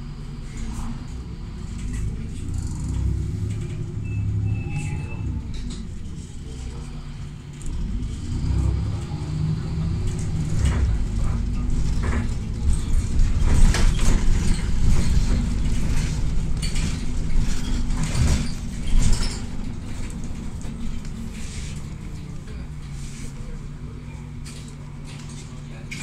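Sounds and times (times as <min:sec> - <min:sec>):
bus engine drone: 0:00.0 - 0:26.0
wheels knocking over tram tracks: 0:10.0 - 0:22.4.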